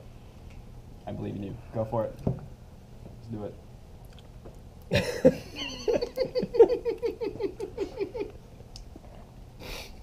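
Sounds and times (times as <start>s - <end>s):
person laughing: 4.9s - 8.4s.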